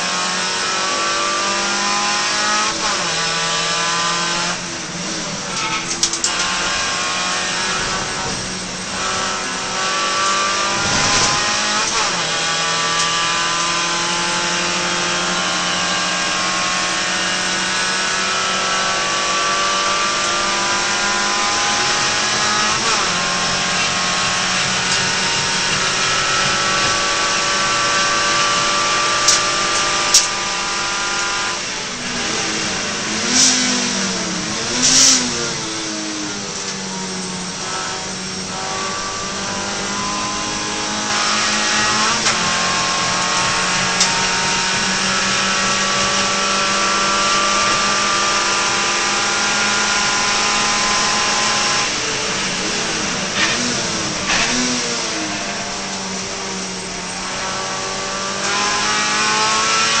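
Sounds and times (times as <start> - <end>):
race car engine revving: 0.0 - 60.0.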